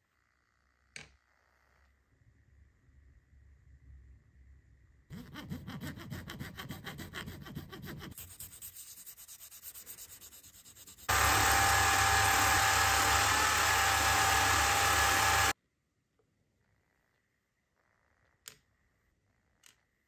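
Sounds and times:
sandpaper rubbing strokes: 5.2 - 15.5
buffing wheel hum and whine: 11.1 - 15.6.

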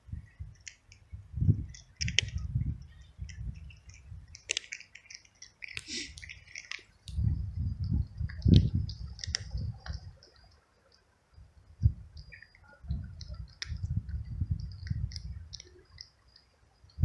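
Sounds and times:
wind buffeting microphone: 0.0 - 4.5, 7.0 - 10.5, 11.3 - 16.0
kitten crunching dry kibble: 1.6 - 7.3, 8.1 - 10.4, 13.2 - 16.1.

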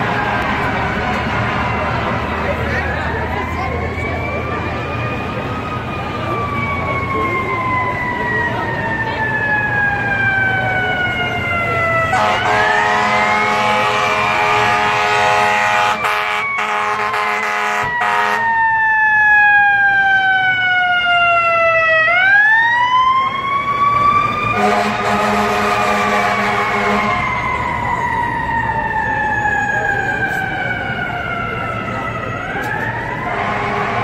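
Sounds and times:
fire truck siren wailing: 0.0 - 34.0
blaring horn: 12.0 - 18.5, 24.5 - 27.4, 33.2 - 34.0.

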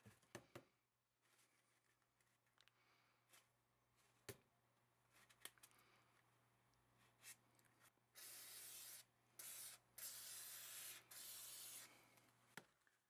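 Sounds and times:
aerosol spray hissing: 8.2 - 12.0.

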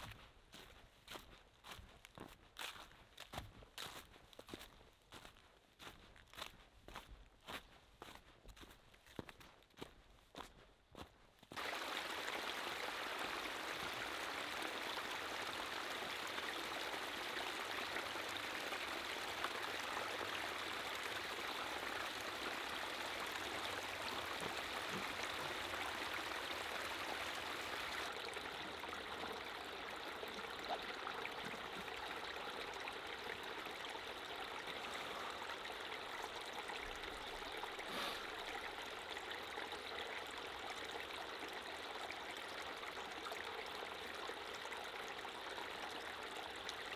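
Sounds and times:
creek babbling over stones: 11.5 - 46.9.

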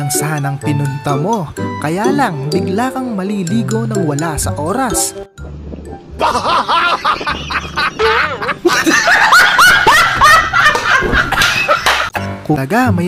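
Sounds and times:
person laughing: 6.2 - 12.2.

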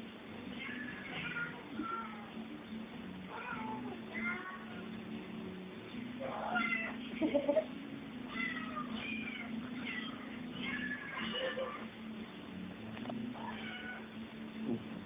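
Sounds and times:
cat meowing: 0.5 - 2.3, 3.3 - 4.9, 6.2 - 7.0, 8.3 - 11.8, 13.4 - 14.1.

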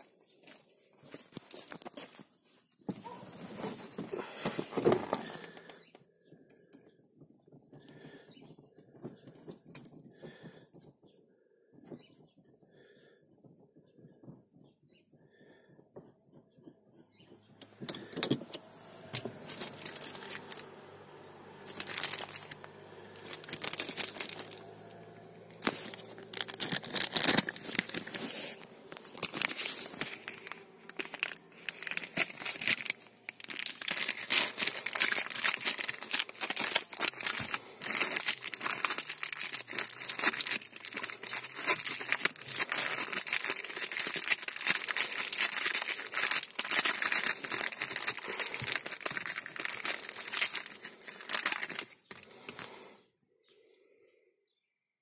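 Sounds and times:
plastic packaging crinkling: 1.0 - 5.8, 19.0 - 52.8.

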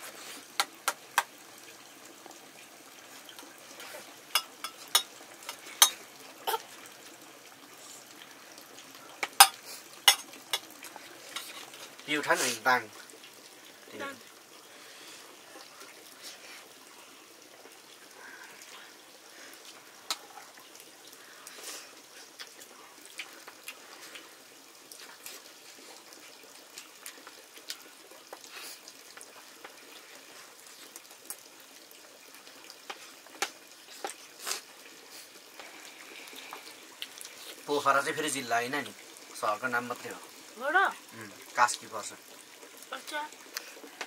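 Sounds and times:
steady hiss: 0.0 - 1.8, 7.6 - 26.0
pots and utensils clinking: 4.3 - 6.6, 9.2 - 10.7, 11.3 - 11.9.

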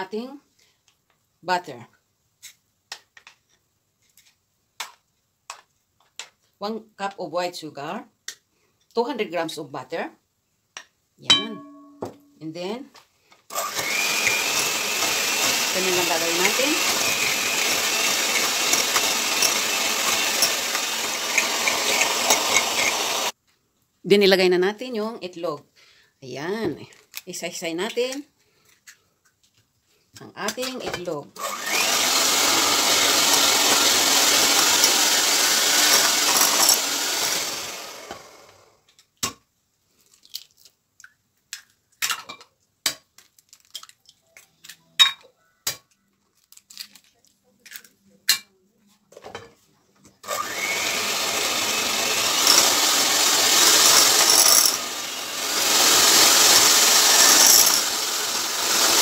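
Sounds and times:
electric hand mixer running: 13.5 - 23.4, 31.4 - 38.7, 50.2 - 59.0.

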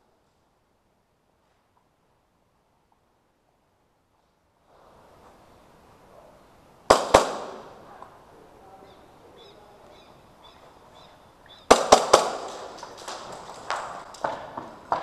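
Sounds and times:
scattered cracks and knocks: 11.7 - 15.0.

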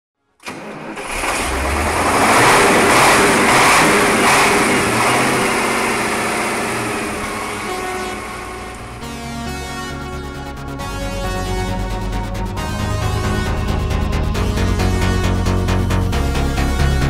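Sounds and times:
heavy truck engine: 0.4 - 10.0
music: 7.8 - 17.0.

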